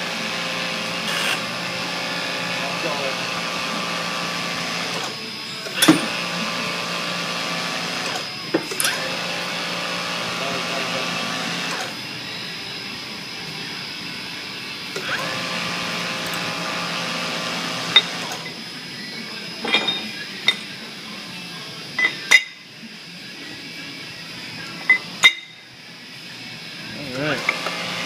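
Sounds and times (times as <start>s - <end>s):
steady mechanical hum: 0.0s - 28.0s.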